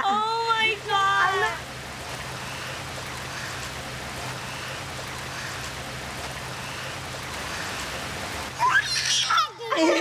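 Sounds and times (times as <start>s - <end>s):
light rain falling: 0.0s - 10.0s
toddler squealing: 8.6s - 9.7s.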